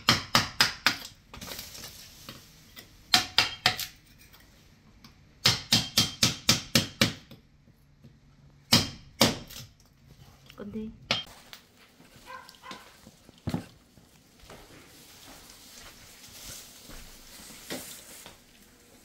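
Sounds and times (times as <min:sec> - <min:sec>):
hammer striking steel chisel: 0:03.1 - 0:04.0, 0:05.4 - 0:07.4.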